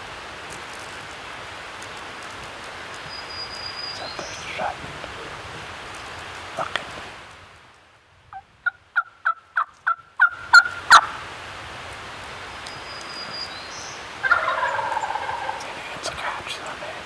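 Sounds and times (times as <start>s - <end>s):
wild turkey yelping: 8.3s - 11.2s, 14.2s - 16.4s.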